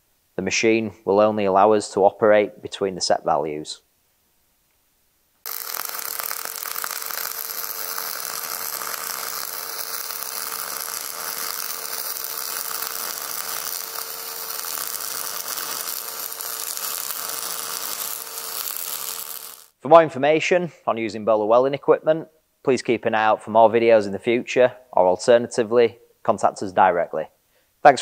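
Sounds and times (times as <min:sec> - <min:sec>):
welding arc crackling: 0:05.4 - 0:19.8.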